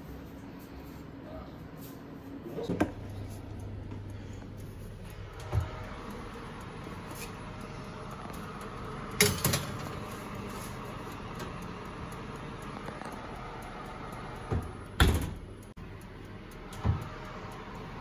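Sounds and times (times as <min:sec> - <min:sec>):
steady low hum: 0:00.0 - 0:18.0
metal tray clattering on oven rack: 0:09.2 - 0:09.9.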